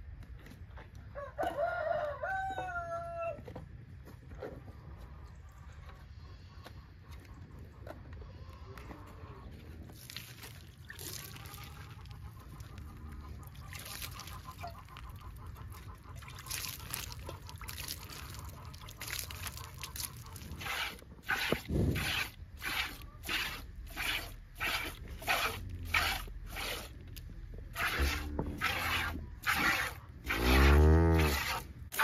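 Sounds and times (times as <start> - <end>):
milk squirting into a pail: 9.9 - 12.8, 13.5 - 26.9, 27.7 - 32.0.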